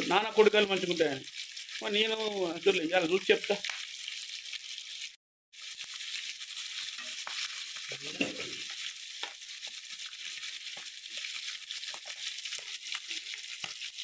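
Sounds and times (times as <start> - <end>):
deep-frying sizzle in oil: 0.0 - 14.0.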